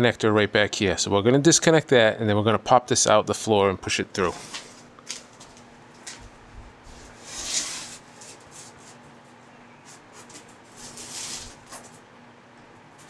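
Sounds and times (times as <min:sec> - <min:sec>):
faint steady hum: 0:00.0 - 0:13.0
rustling and rubbing of carpet: 0:06.8 - 0:09.0, 0:10.2 - 0:12.0.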